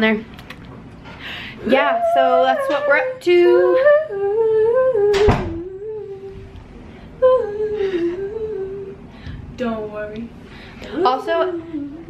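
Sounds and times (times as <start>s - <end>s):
woman humming: 1.6s - 6.5s, 7.2s - 9.0s.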